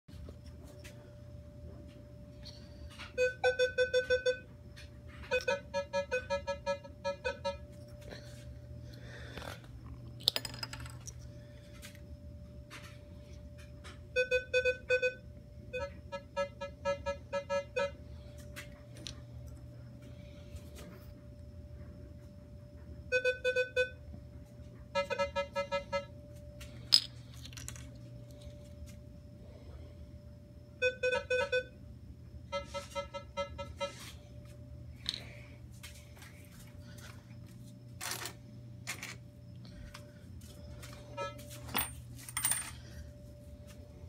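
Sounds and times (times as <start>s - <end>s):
metal detector choppy beeping: 3.1s - 4.5s, 5.2s - 7.6s.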